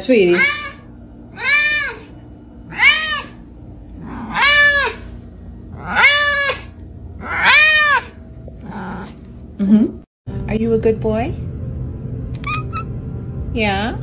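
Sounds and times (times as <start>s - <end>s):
cat meowing loudly: 0.3s - 2.1s, 2.7s - 3.4s, 4.2s - 5.0s, 5.8s - 9.1s.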